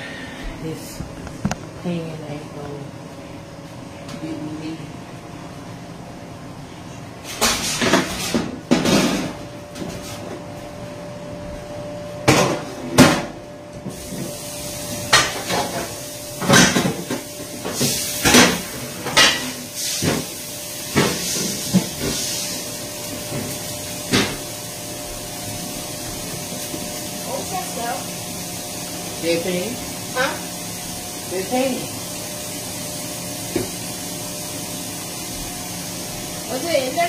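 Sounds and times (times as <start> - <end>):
dishes clattering in a metal sink: 7.3 - 9.4, 15.1 - 20.3
tap water running: 13.7 - 37.0.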